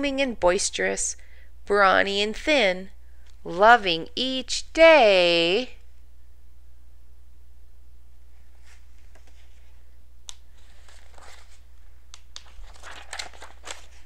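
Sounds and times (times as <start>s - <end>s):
low hum: 2.5s - 12.2s
book pages rustling: 8.5s - 9.8s, 10.4s - 14.0s.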